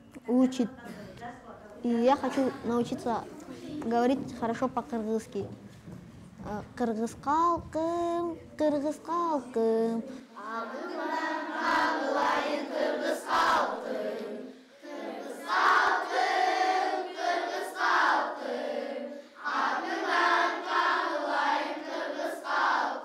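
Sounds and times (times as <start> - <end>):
schoolchildren singing in chorus: 10.4 - 23.0.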